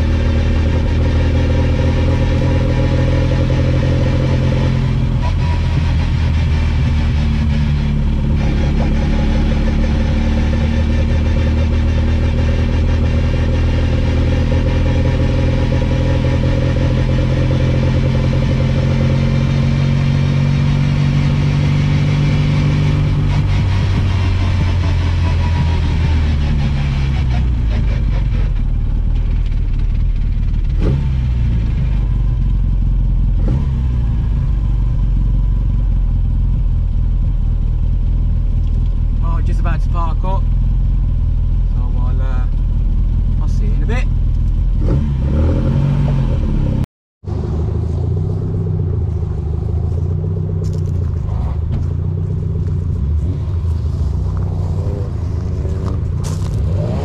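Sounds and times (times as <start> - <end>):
car engine from inside cabin: 0.0 - 57.0.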